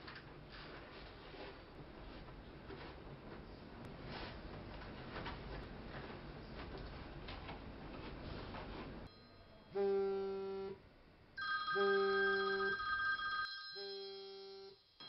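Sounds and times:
mobile phone ringtone: 0:11.4 - 0:14.9.

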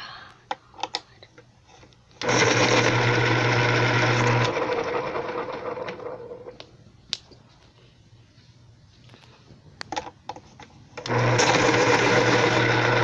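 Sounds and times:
electric pencil sharpener whirring: 0:02.2 - 0:06.5, 0:11.0 - 0:13.0.

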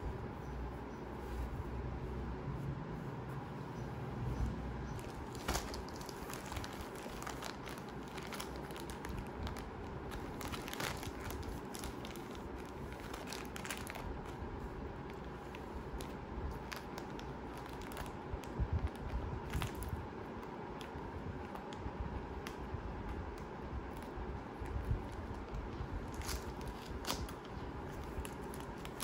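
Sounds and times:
packaging rustling and crinkling: 0:04.9 - 0:20.0, 0:23.8 - 0:29.0
small crackles and clicks: 0:05.0 - 0:14.4, 0:15.0 - 0:21.8, 0:22.4 - 0:29.0.

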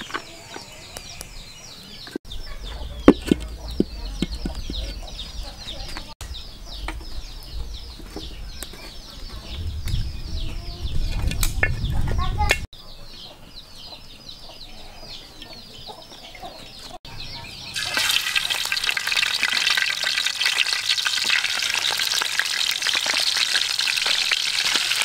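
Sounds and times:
chicks peeping: 0:00.0 - 0:18.8
low rumble: 0:02.3 - 0:12.7.

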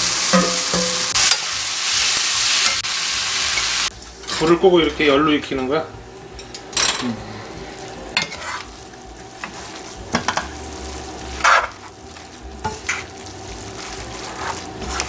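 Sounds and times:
food sizzling in a wok: 0:00.0 - 0:05.4, 0:07.4 - 0:15.0
utensils scraping and tapping pan: 0:00.3 - 0:01.5, 0:08.2 - 0:08.7, 0:09.3 - 0:10.6, 0:11.3 - 0:12.0, 0:12.6 - 0:15.0.

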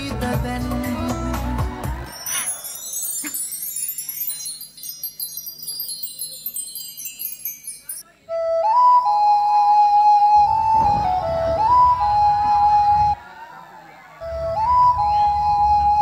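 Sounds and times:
shimmering high chimes: 0:02.0 - 0:08.3
flute-like melody: 0:02.0 - 0:13.3, 0:14.2 - 0:16.0.

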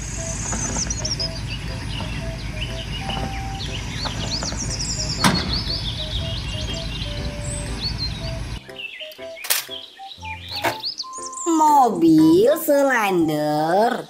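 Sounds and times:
low steady rumble: 0:00.0 - 0:08.6
birds chirping: 0:00.0 - 0:14.0
light background tune: 0:00.0 - 0:14.0
sharp click: 0:09.1 - 0:09.8.

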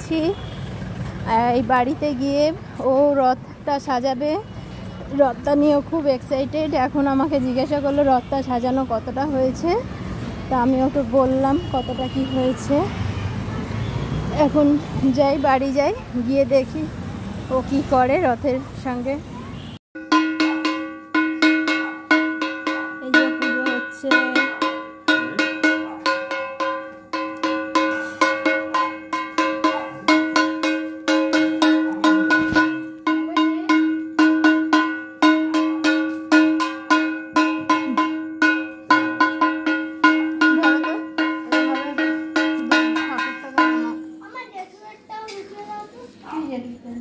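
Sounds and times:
metal hand bell ringing: 0:17.6 - 0:19.5.

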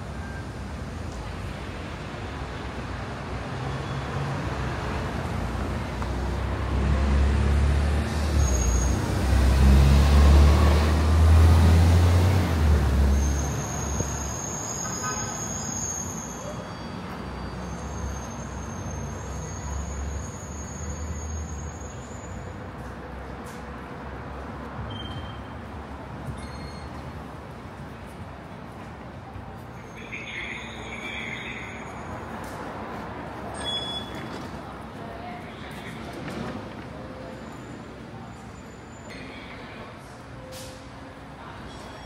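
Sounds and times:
road traffic: 0:00.0 - 0:42.0
heavy vehicle rumbling past: 0:03.4 - 0:14.2.

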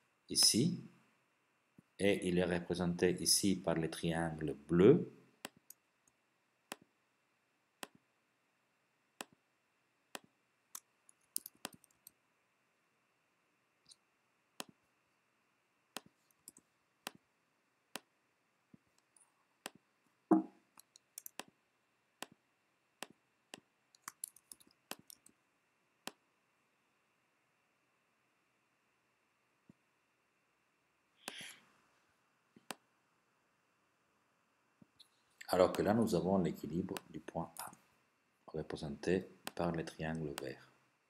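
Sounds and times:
computer mouse clicks: 0:10.2 - 0:12.2, 0:19.6 - 0:21.6, 0:23.0 - 0:25.4.

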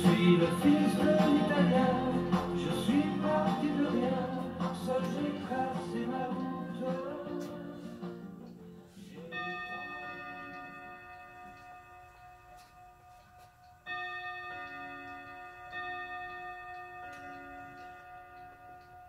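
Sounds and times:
bell-like chimes ringing: 0:09.2 - 0:19.0.

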